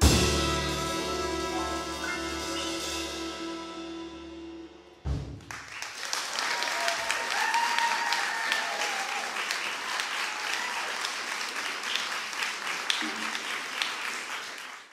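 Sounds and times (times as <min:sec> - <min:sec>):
jazz band chord: 0:00.0 - 0:05.3
audience applause: 0:05.4 - 0:14.9
person whooping: 0:06.4 - 0:09.3.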